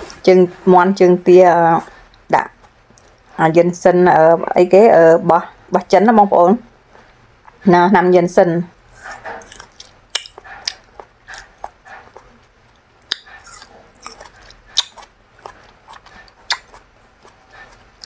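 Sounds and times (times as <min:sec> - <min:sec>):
wet chewing and lip smacks: 0:02.1 - 0:03.3, 0:09.0 - 0:18.0
sharp mouth clicks: 0:09.4 - 0:18.0.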